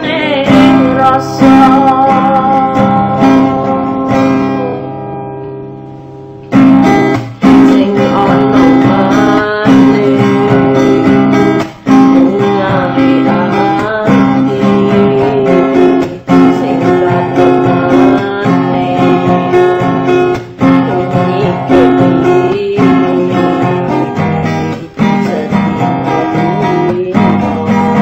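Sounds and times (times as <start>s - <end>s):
acoustic guitar music: 0.0s - 28.0s.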